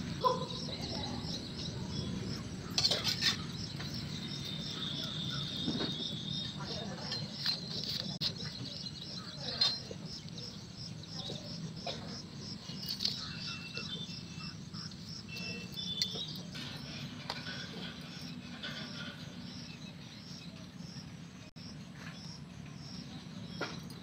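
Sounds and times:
crickets chirping: 0:00.0 - 0:23.9
bird chirps: 0:00.2 - 0:11.9, 0:12.5 - 0:17.0.

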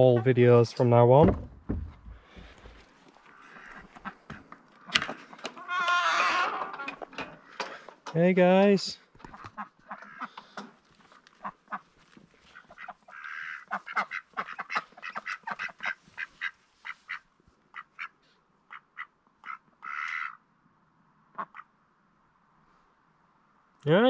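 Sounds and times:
ducks quacking: 0:03.2 - 0:06.9, 0:09.2 - 0:10.6, 0:11.4 - 0:20.4, 0:21.3 - 0:21.7.

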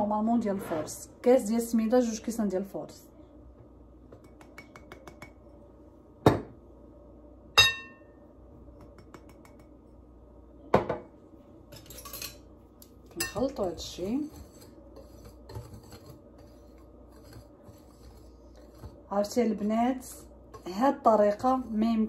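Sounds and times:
metal utensils rattling: 0:11.7 - 0:12.4.

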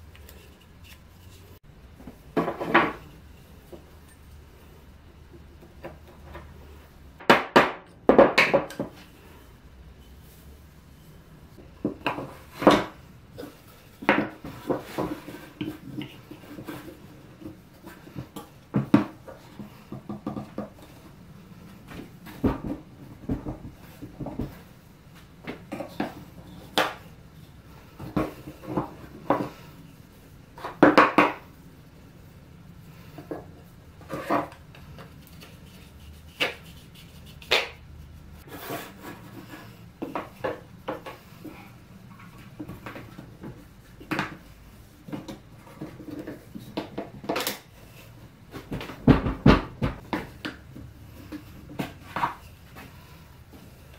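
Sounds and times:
wooden blocks knocking on workbench: 0:07.2 - 0:09.0, 0:30.6 - 0:31.4.

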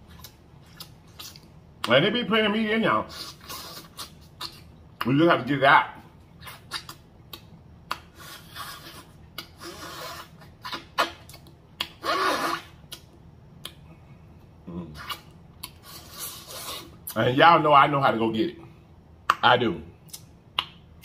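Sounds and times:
chewing: 0:00.0 - 0:01.6
lip smacking: 0:00.0 - 0:02.0, 0:03.0 - 0:05.2, 0:06.4 - 0:17.2, 0:20.0 - 0:21.0
wet sucking sounds: 0:03.0 - 0:04.7, 0:06.4 - 0:13.0, 0:14.9 - 0:17.2.

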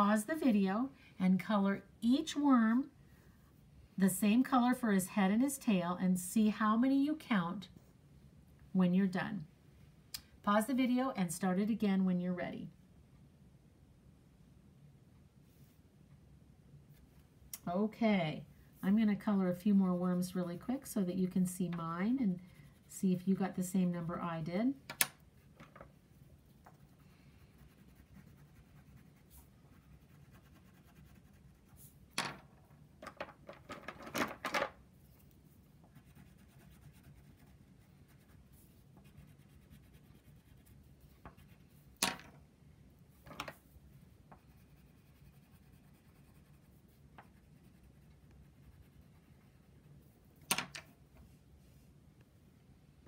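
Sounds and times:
crayon scribbling on paper: 0:26.7 - 0:31.9, 0:35.9 - 0:41.7, 0:44.0 - 0:49.8.

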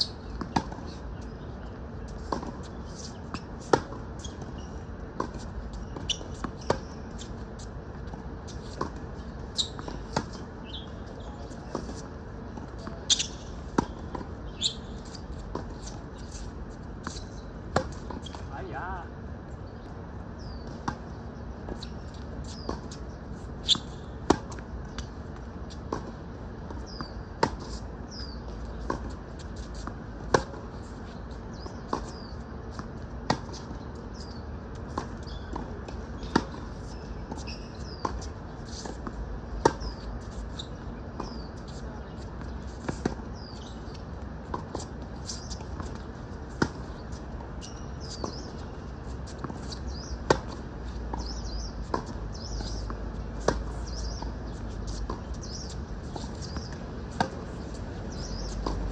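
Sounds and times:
tennis ball bouncing: 0:00.0 - 0:01.0, 0:02.1 - 0:10.9, 0:11.7 - 0:18.4, 0:21.7 - 0:25.1, 0:25.7 - 0:30.7, 0:31.6 - 0:48.6, 0:49.2 - 0:58.9
racket hitting tennis ball: 0:49.3 - 0:58.9.

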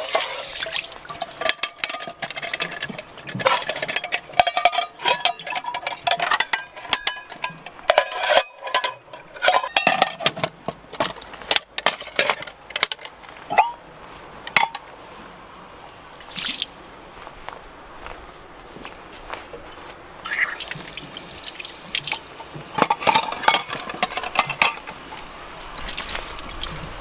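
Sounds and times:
metal pots clinking together: 0:00.0 - 0:13.8, 0:22.1 - 0:25.3.

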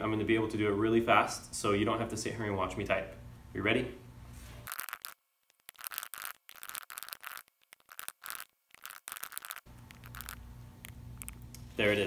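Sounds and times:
low room hum: 0:00.0 - 0:04.7, 0:09.7 - 0:12.0
computer keyboard typing: 0:04.7 - 0:10.4.

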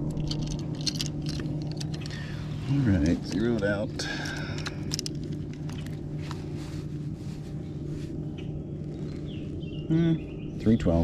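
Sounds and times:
fish lip-grip clicking and rattling: 0:00.0 - 0:02.2, 0:03.3 - 0:06.0
steady low hum: 0:00.0 - 0:11.0.

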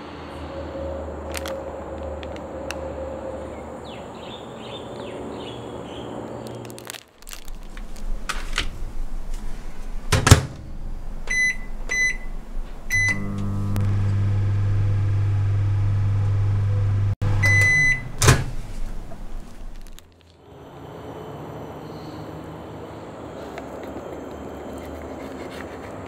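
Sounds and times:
plastic wrapper crinkling: 0:01.3 - 0:02.4, 0:06.4 - 0:09.5, 0:19.4 - 0:20.4
microwave oven humming: 0:08.1 - 0:19.5
microwave keypad beeps: 0:11.3 - 0:13.4, 0:17.3 - 0:18.2
long beep: 0:17.4 - 0:18.1.

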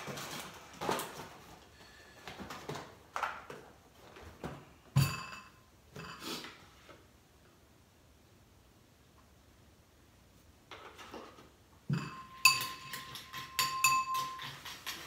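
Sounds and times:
cereal box and bag rustling: 0:00.0 - 0:03.0.

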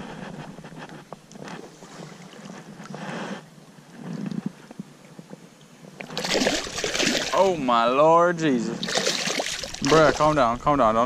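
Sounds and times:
river water sloshing and splashing: 0:01.5 - 0:03.0, 0:06.0 - 0:07.6, 0:08.8 - 0:10.5.

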